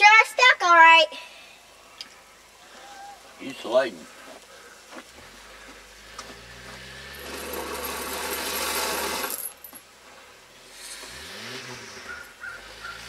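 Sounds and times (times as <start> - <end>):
engine revving: 5.8 - 9.7, 10.5 - 13.0
tyre spinning in snow hiss: 6.4 - 9.4.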